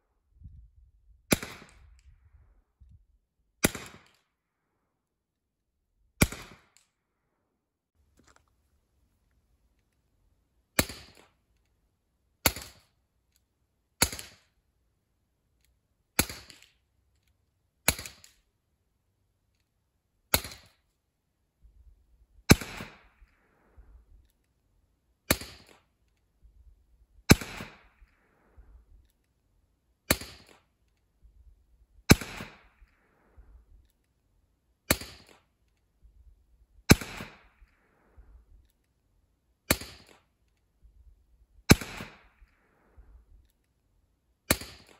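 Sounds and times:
air pistol shots popping: 36.9 - 37.5, 39.7 - 40.2, 41.7 - 42.4, 44.5 - 44.9.

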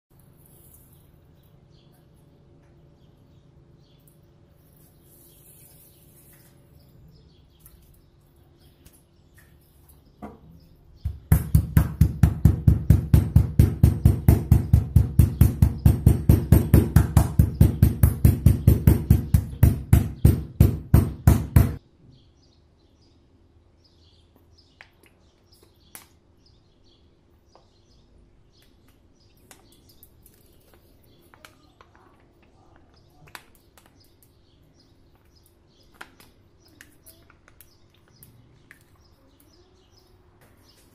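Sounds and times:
meat mallet pounding on board: 11.1 - 21.8.

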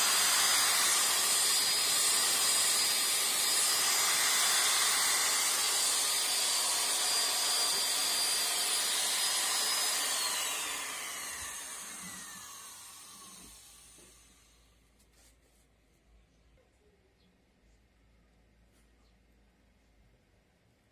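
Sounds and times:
power tool whining: 0.0 - 14.5.

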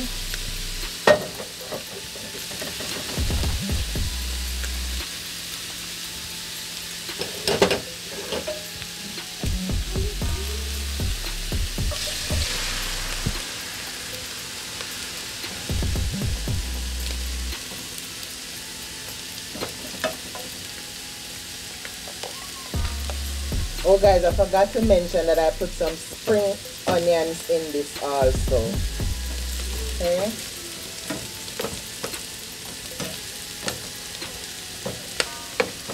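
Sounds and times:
food sizzling in hot oil: 0.0 - 35.9
spatula stirring in a pan: 11.9 - 15.7.

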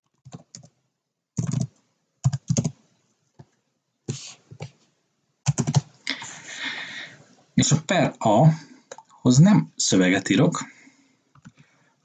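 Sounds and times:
typing on computer keyboard: 0.1 - 0.8, 1.4 - 2.8, 5.4 - 5.9.

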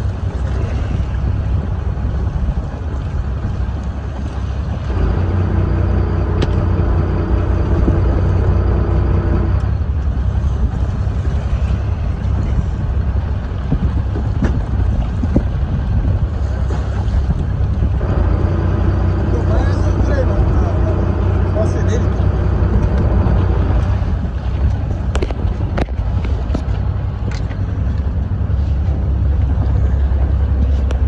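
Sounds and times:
wind buffeting microphone: 0.0 - 31.0
steady hum: 4.8 - 14.0.

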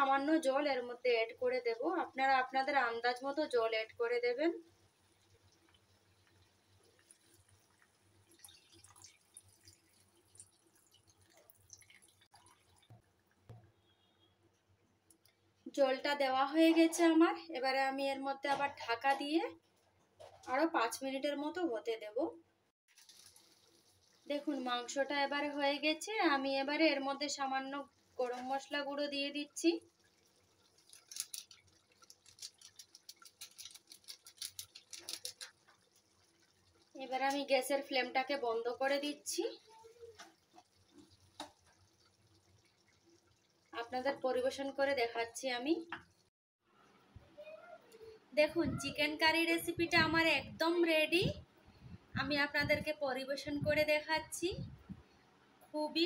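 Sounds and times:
curry bubbling and popping: 4.6 - 14.3, 22.9 - 46.3
water pouring into pan: 4.7 - 13.3, 22.9 - 25.8, 27.6 - 38.4, 39.0 - 44.9.

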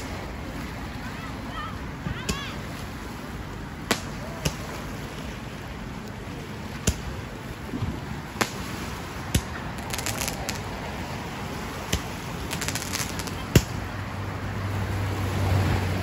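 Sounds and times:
steady background noise: 0.0 - 16.0
crackling firework pops: 3.9 - 4.6, 6.8 - 7.1, 8.4 - 10.7, 11.9 - 13.8
firework bangs: 8.3 - 10.7, 11.9 - 13.9.

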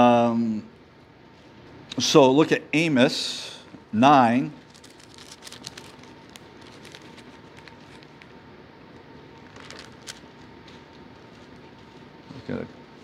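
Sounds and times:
book pages rustling: 4.6 - 8.3, 9.3 - 12.1
paper crackles and ticks: 4.6 - 8.3, 9.4 - 10.5.

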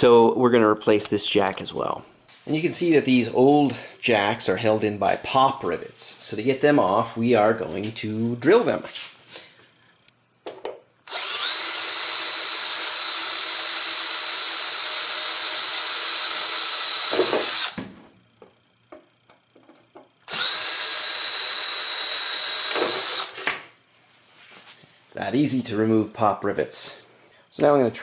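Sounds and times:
cordless drill drilling rivets: 11.0 - 17.8, 19.8 - 23.6.

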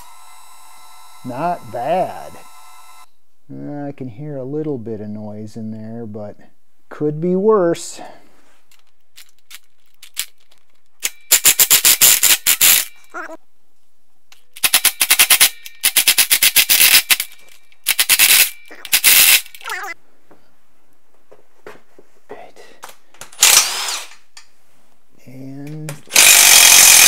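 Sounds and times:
impact driver rattling on bolts: 23.3 - 24.1, 26.0 - 27.0.

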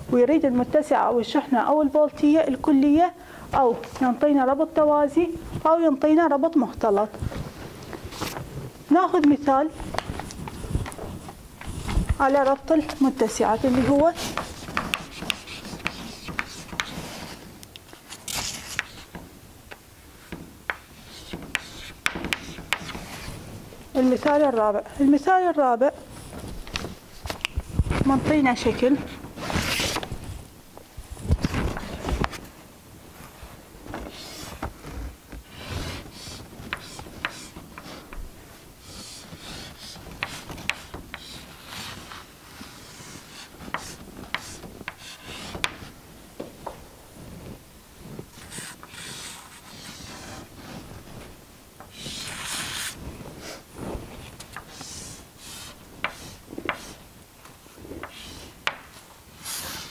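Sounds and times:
chalk tapping and scratching: 9.2 - 17.5, 18.3 - 19.2, 20.2 - 23.4, 34.1 - 38.2, 38.8 - 45.9, 48.4 - 51.2, 51.8 - 53.6, 54.2 - 57.0, 58.0 - 59.9
chalk scraping on chalkboard: 10.5 - 17.4, 21.0 - 23.4, 35.5 - 38.1, 38.8 - 45.9, 48.4 - 50.8, 51.9 - 53.6, 54.2 - 57.0, 58.0 - 58.6, 59.4 - 59.9.

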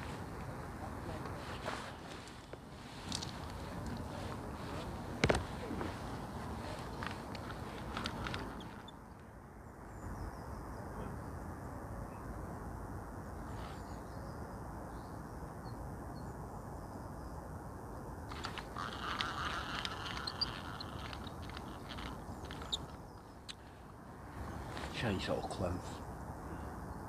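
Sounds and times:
outdoor background hiss: 0.0 - 27.0
bird calls: 3.2 - 9.2, 18.3 - 25.0.

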